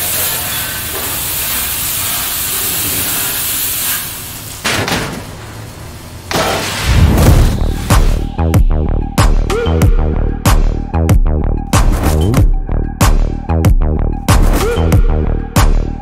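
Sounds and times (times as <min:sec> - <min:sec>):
hiss of cutting sparks: 0:00.0 - 0:08.3
sharp swoosh: 0:06.5 - 0:08.6
deep boom: 0:06.8 - 0:09.4.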